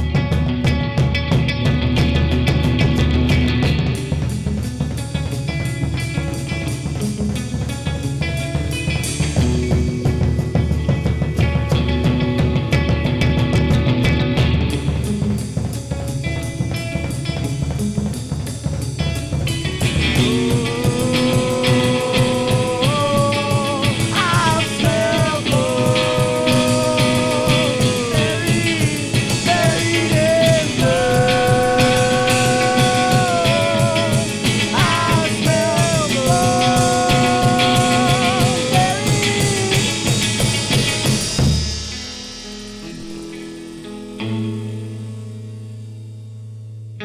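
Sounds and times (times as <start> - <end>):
drum kit: 0.0 - 46.2
electric guitar: 0.0 - 47.0
man singing: 20.0 - 40.6.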